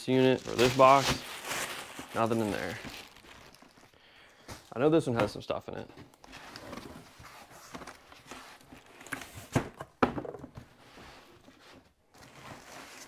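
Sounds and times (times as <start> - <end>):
cardboard rustling: 0.1 - 13.0.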